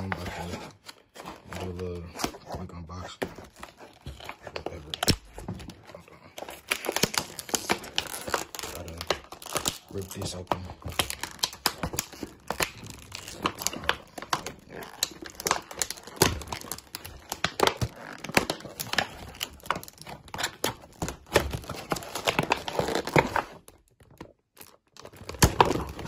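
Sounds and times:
plastic packaging ripping: 3.4s - 26.0s.

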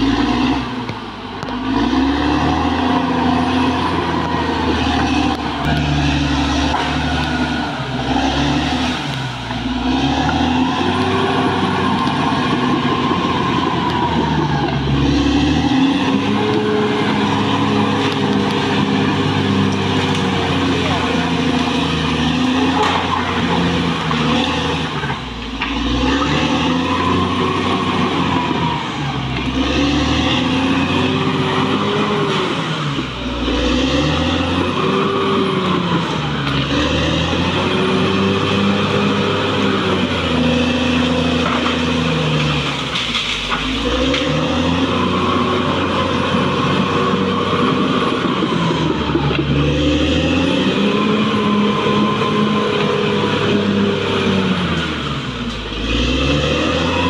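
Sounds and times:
bulldozer diesel engine running hard: 0.0s - 57.0s.

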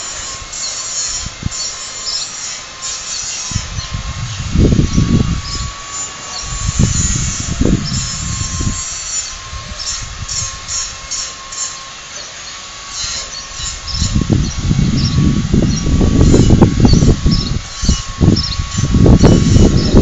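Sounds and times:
faint high whine: 0.0s - 20.0s
wind buffeting microphone: 1.2s - 1.7s, 3.5s - 11.1s, 13.5s - 20.0s.

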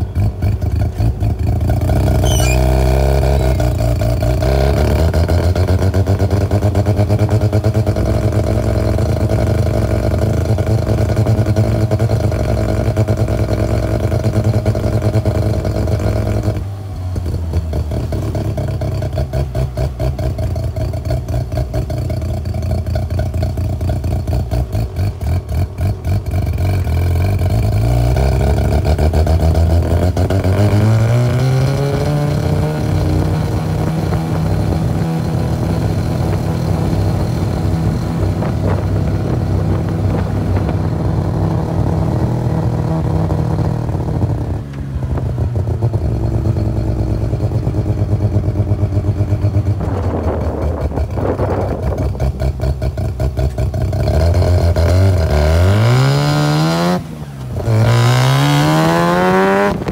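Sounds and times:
car engine running: 32.6s - 54.1s, 56.6s - 59.9s.

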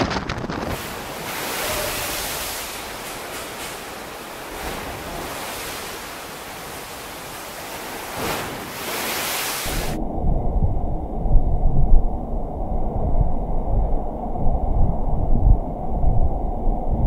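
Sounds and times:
water crashing on deck: 0.0s - 10.0s
wind buffeting microphone: 0.0s - 17.0s
pool water sloshing: 0.7s - 10.0s
low rumbling: 9.7s - 17.0s.

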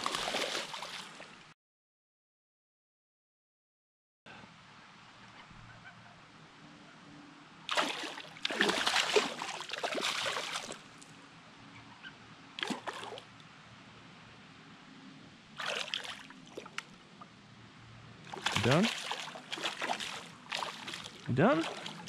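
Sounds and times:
fish splashing in water: 0.0s - 1.2s, 7.7s - 10.8s, 12.6s - 13.2s, 15.6s - 16.8s, 18.3s - 22.0s.

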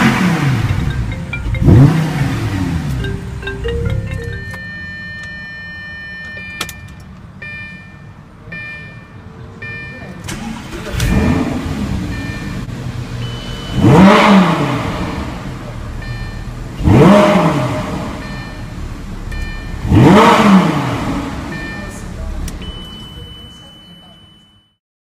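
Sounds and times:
car engine revving: 0.0s - 5.7s, 9.6s - 22.9s
car engine starting and idling: 0.0s - 24.4s
dashboard warning chimes: 0.0s - 24.8s.

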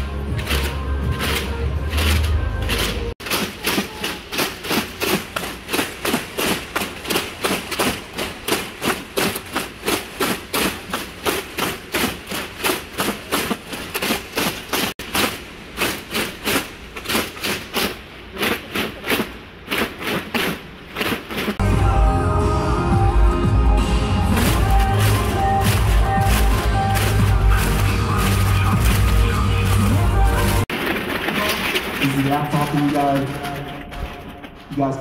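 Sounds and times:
crowd striking paper clappers: 0.0s - 21.6s, 24.3s - 34.8s.

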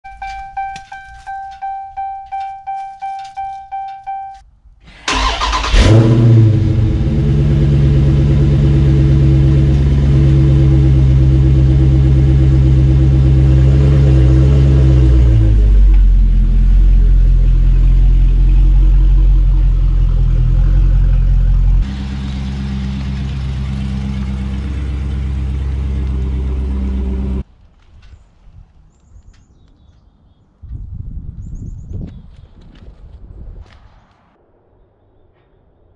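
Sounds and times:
car warning chime: 0.0s - 4.4s
car engine starting and idling: 0.2s - 27.4s.

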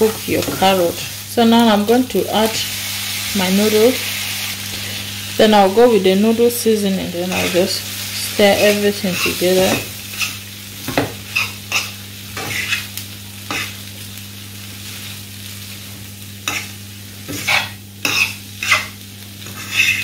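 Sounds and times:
low sizzle: 0.0s - 20.0s
fork scraping frying pan: 8.6s - 10.4s, 11.3s - 12.9s, 13.5s - 13.8s, 16.4s - 20.0s.

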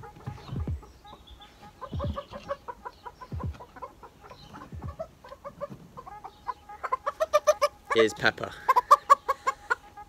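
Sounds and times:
low dull bumps: 0.0s - 6.2s
hens clucking: 0.0s - 10.0s.

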